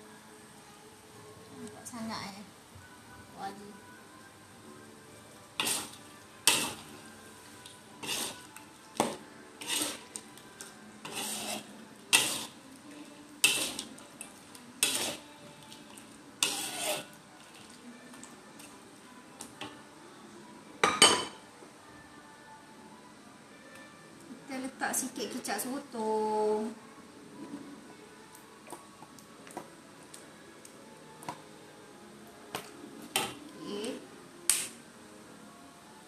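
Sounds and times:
metal spatula scraping a wok: 5.6s - 6.9s, 8.0s - 10.2s, 11.0s - 12.6s, 13.4s - 14.0s, 14.8s - 15.3s, 16.4s - 17.2s.

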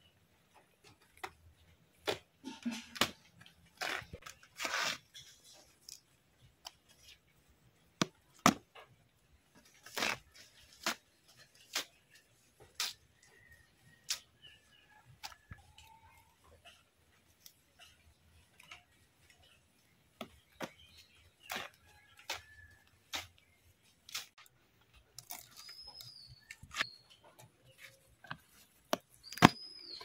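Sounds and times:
tearing and rustling: 2.6s - 6.1s, 9.6s - 13.0s
vegetables snapping: 23.1s - 23.4s, 28.2s - 30.0s.

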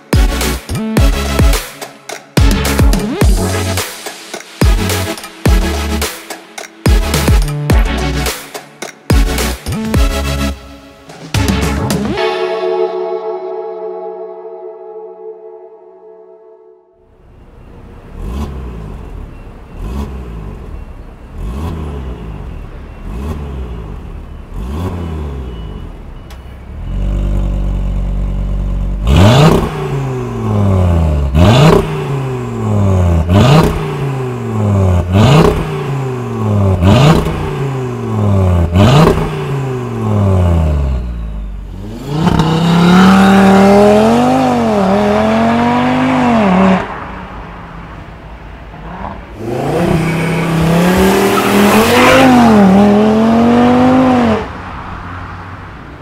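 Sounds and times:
car engine revving: 17.7s - 56.0s
car engine accelerating hard: 18.0s - 56.0s.

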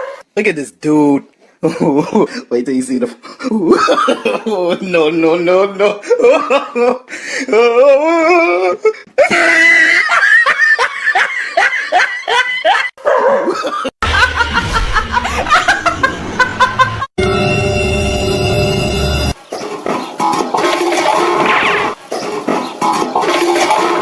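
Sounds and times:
person laughing hard: 3.4s - 4.8s, 5.8s - 17.1s.

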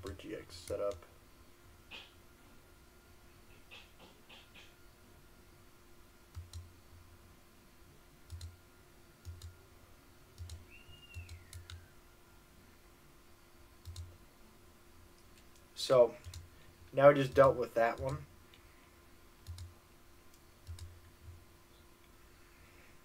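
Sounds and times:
computer mouse clicks: 6.3s - 6.7s, 8.3s - 8.5s, 9.2s - 9.5s, 10.4s - 11.8s, 13.8s - 14.1s, 15.2s - 16.5s, 17.3s - 18.6s, 19.4s - 19.7s, 20.3s - 20.9s.

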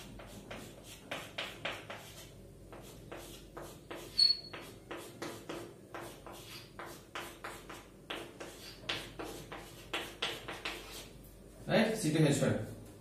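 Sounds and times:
chalk tapping and scraping on chalkboard: 0.0s - 11.3s
chalk squeak: 3.1s - 7.8s.

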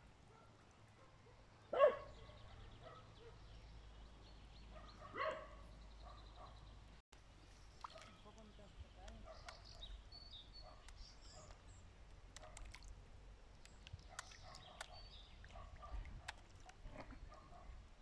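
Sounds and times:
fish slurping at water surface: 12.4s - 13.0s.

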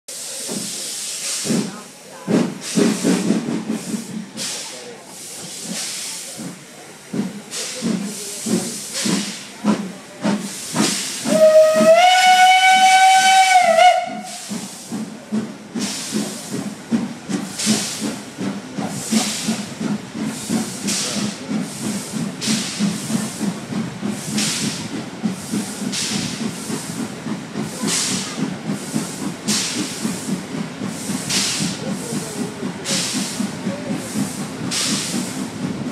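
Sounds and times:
steam locomotive chuffing: 0.1s - 35.9s
steam whistle: 11.2s - 14.5s.

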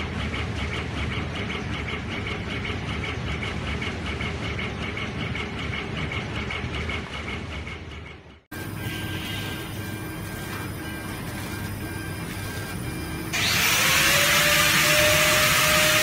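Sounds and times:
laser engraver heads whirring: 8.6s - 16.0s.

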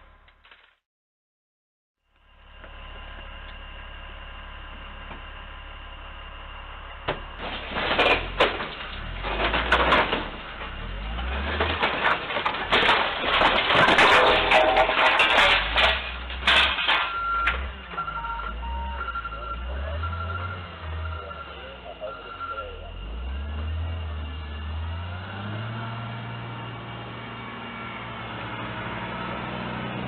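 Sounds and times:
crashing knocking and scraping: 7.0s - 21.3s.

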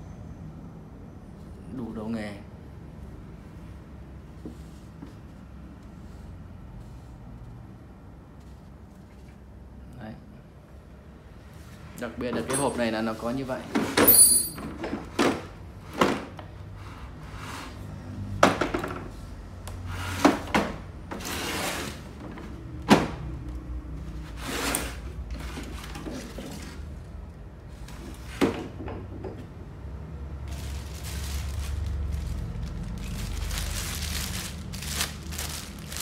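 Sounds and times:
plastic bag rustling: 30.4s - 36.0s.

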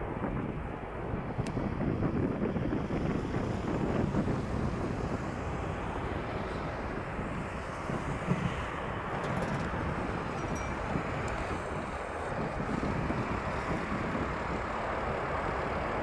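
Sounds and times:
jet engines roaring: 0.0s - 16.0s
wind on microphone: 0.0s - 16.0s.

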